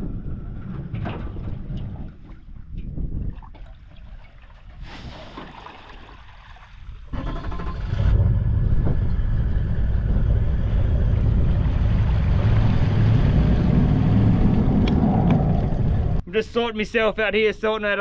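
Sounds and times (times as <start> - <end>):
vehicle engine rumbling: 7.1 - 16.3.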